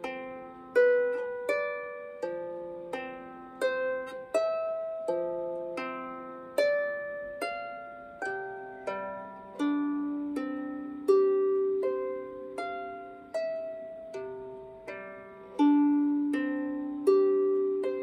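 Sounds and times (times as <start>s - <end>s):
harp plucked melody: 0.0s - 18.0s.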